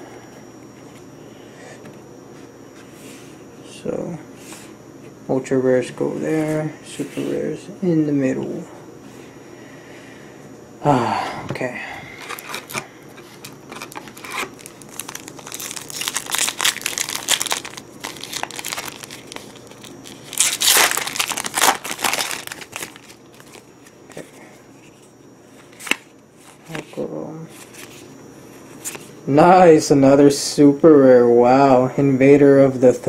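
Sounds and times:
foil wrapper crinkling: 0:12.2 - 0:24.2
foil wrapper tearing: 0:13.4 - 0:23.7.

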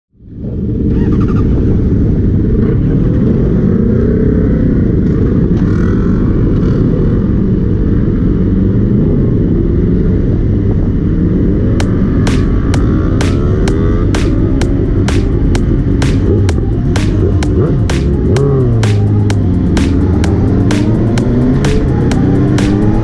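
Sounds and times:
motorcycle engines idling: 0:11.7 - 0:23.0.

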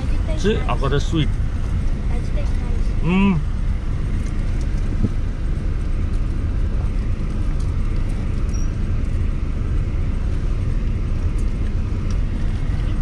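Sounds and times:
truck engine and road rumble: 0:00.0 - 0:13.0.

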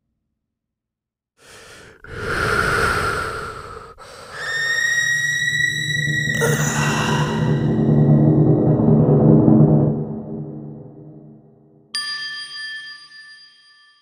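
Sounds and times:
breath-like rushing noise: 0:01.4 - 0:11.5.

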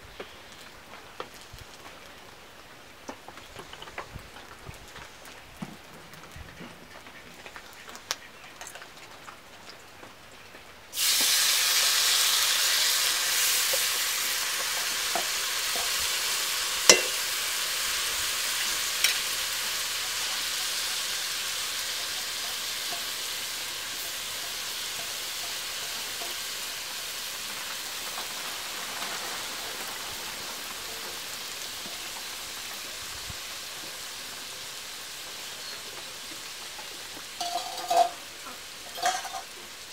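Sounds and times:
food sizzling in hot oil: 0:10.9 - 0:39.9
metal clinks against pan: 0:16.9 - 0:17.2, 0:37.4 - 0:38.2, 0:38.9 - 0:39.5.

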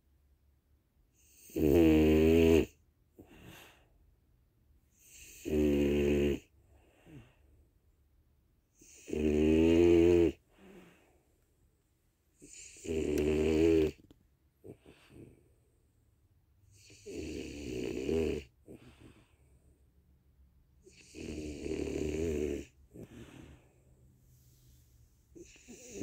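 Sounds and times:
dog snoring: 0:01.2 - 0:03.8, 0:04.9 - 0:07.4, 0:08.7 - 0:11.1, 0:12.4 - 0:14.0, 0:14.6 - 0:15.6, 0:16.7 - 0:19.6, 0:20.8 - 0:23.8, 0:25.3 - 0:26.0.

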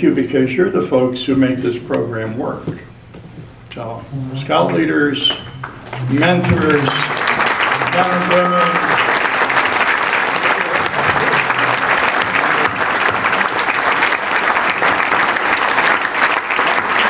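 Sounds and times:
audience applauding: 0:04.6 - 0:17.0.

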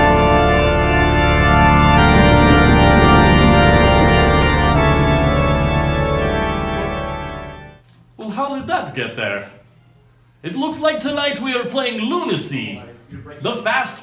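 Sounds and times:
organ chords theme music: 0:00.0 - 0:07.8.

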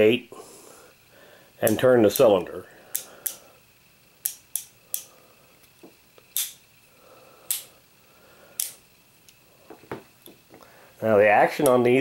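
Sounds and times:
revolver cylinder clicking: 0:01.5 - 0:09.5, 0:11.4 - 0:12.0.

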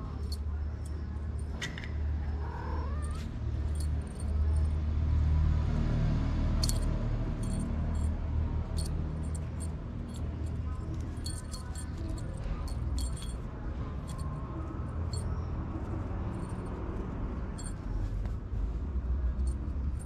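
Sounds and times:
kitten meowing: 0:02.3 - 0:03.4.

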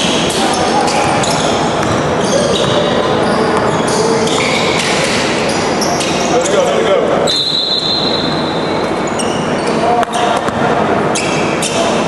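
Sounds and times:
sneakers squeaking on court: 0:00.0 - 0:06.6, 0:07.3 - 0:12.0
echoing indistinct voices: 0:00.0 - 0:12.0
ball bouncing: 0:01.8 - 0:05.2, 0:10.0 - 0:10.8.

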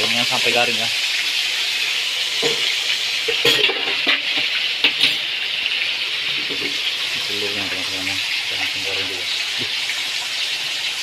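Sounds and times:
fish sizzling in hot oil: 0:00.0 - 0:11.0
utensils clinking against pan: 0:02.4 - 0:05.3.

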